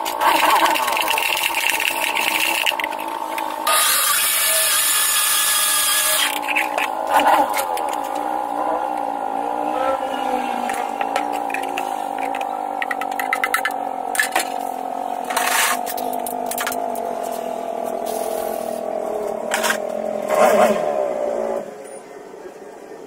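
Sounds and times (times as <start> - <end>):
motor hum sinking in pitch: 0.0 - 23.0
clicks and clatter: 10.7 - 14.7, 15.3 - 17.1.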